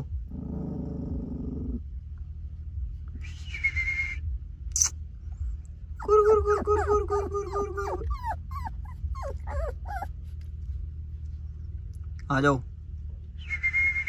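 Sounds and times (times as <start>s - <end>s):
puppy growling: 0.0s - 1.9s, 6.0s - 10.8s
puppies whimpering: 6.0s - 10.6s
puppy whining: 6.0s - 10.9s.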